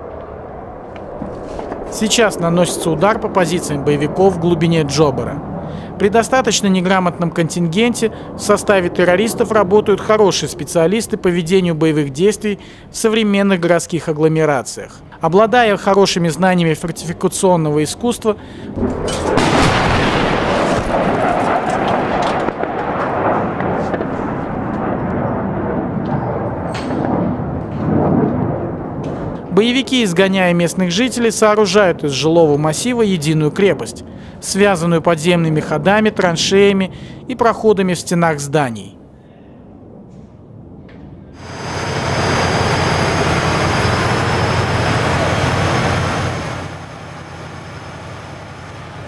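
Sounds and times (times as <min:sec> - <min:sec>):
explosion rumble: 0:00.0 - 0:12.9, 0:18.5 - 0:29.8, 0:39.7 - 0:48.2
diesel engine rumbling: 0:41.4 - 0:49.0.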